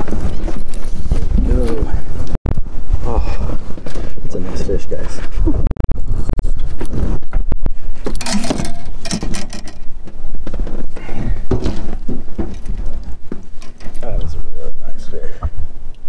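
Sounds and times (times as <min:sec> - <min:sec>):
knocks and clicks: 0:06.5 - 0:10.2.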